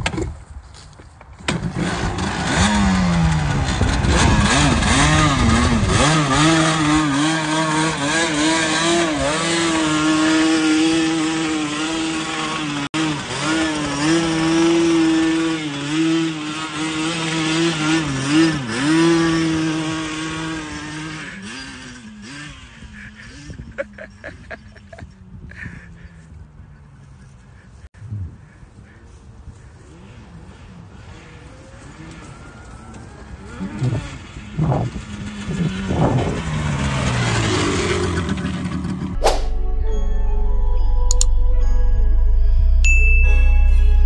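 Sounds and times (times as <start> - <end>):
quad bike engine revving: 1.5 - 26.2, 29.8 - 39.2.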